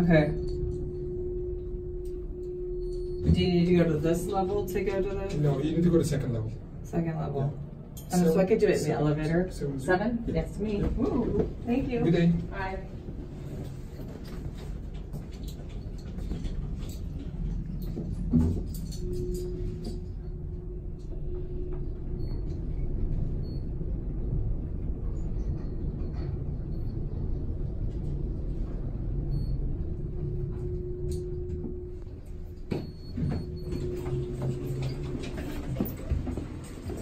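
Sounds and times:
elevator low rumble: 0.0 - 37.0
faint hum: 0.0 - 37.0
elevator stopping click: 29.3 - 37.0
elevator doors sliding open: 31.6 - 37.0.

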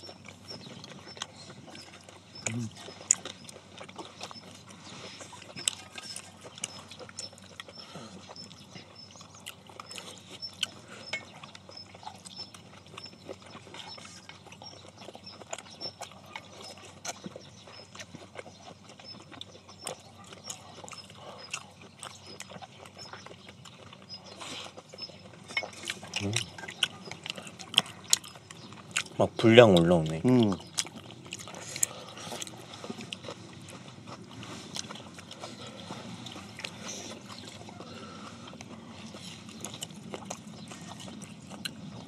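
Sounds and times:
people chewing and slurping: 0.0 - 42.0.

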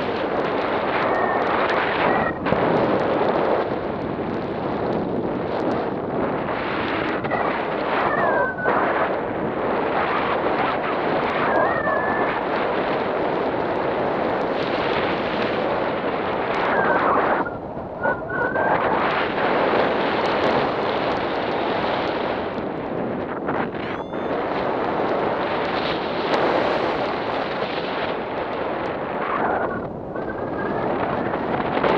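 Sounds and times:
wind buffeting microphone: 0.0 - 31.9
faint whistling glides: 0.7 - 2.5, 6.7 - 9.2, 9.9 - 12.8, 16.4 - 19.7, 23.7 - 24.7, 29.2 - 31.9.

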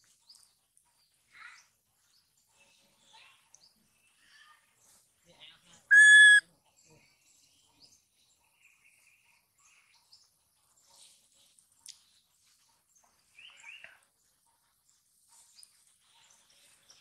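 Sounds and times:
baby monkey high-pitched cry: 5.9 - 6.4.

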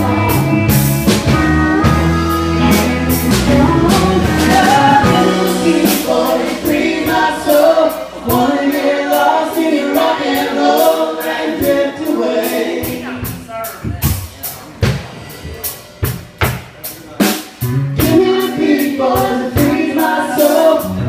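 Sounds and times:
electric guitar: 0.0 - 8.7
pedal steel guitar: 0.0 - 9.0
bass guitar: 0.0 - 10.8, 12.7 - 21.0
drum kit: 0.0 - 21.0
woman singing lead: 1.6 - 10.9, 18.0 - 21.0.

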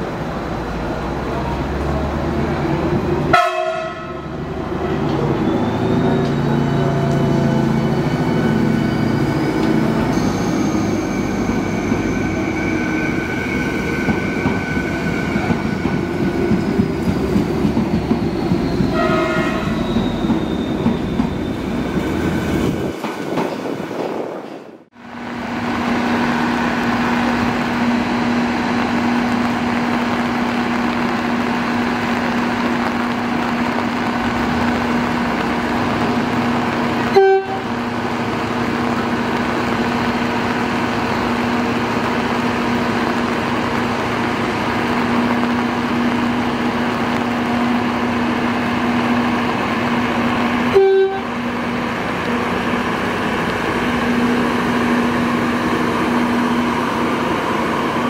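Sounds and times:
diesel train pulling away: 0.0 - 58.0
train equipment hum: 0.0 - 58.0
train horn: 3.3 - 5.0, 18.9 - 20.0, 37.1 - 37.8, 50.7 - 51.4.

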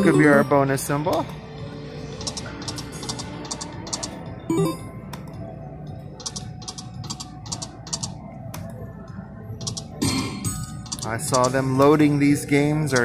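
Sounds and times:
slot machine background music: 0.0 - 8.7, 9.6 - 13.0
slot machine ticks: 3.1 - 4.9.

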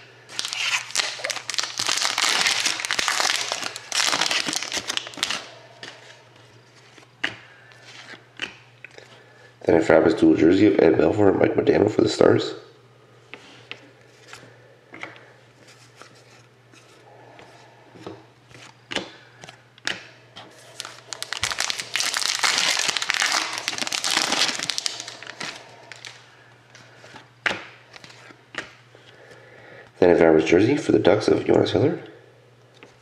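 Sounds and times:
foil wrapper tearing and crinkling: 0.3 - 5.5, 20.7 - 26.2.

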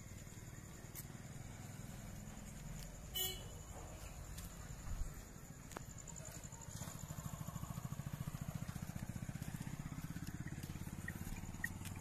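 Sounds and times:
car engine idling: 6.0 - 12.0.

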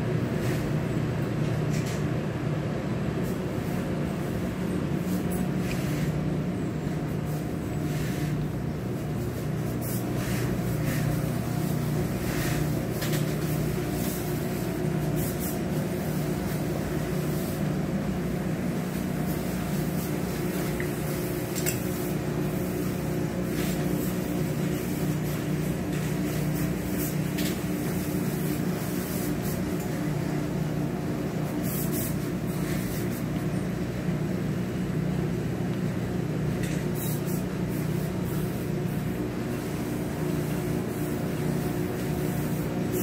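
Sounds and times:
machinery hum: 0.0 - 43.0.

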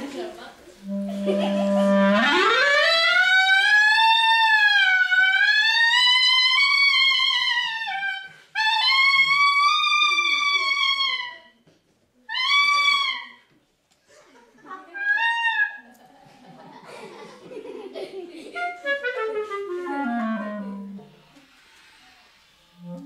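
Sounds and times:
clarinet wavering notes: 0.8 - 11.6, 12.3 - 13.5, 15.0 - 15.8, 18.6 - 21.4, 22.7 - 23.0.

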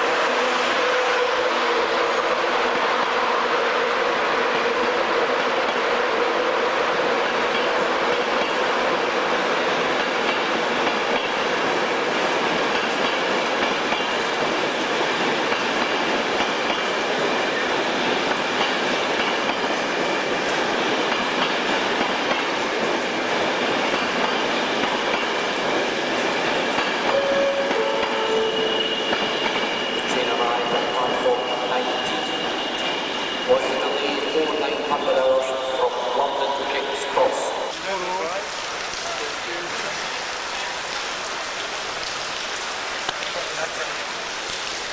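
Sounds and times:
train wheels rumbling on rails: 0.0 - 44.9
train whining tones: 26.5 - 38.0.

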